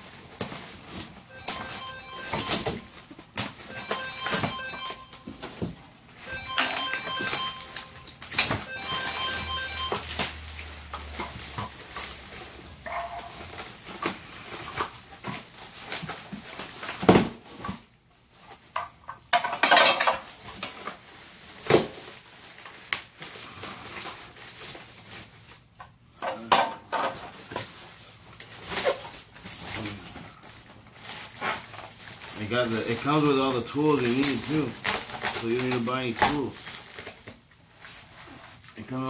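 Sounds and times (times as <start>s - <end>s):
plastic wrapping rustling: 0.0s - 25.8s, 27.0s - 39.0s
hard parts clattering and knocking: 19.3s - 20.7s.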